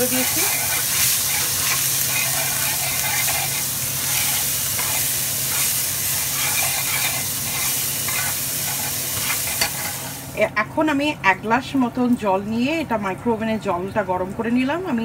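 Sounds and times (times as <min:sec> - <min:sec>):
spatula scraping a pan: 0:00.0 - 0:10.2
spices sizzling in oil: 0:00.0 - 0:10.5.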